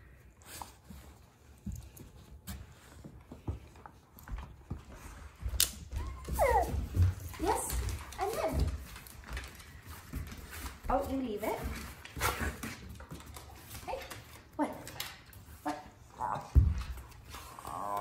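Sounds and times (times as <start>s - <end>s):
thumps and scuffles of dogs: 0.6s - 17.6s
dog whining: 5.9s - 7.0s.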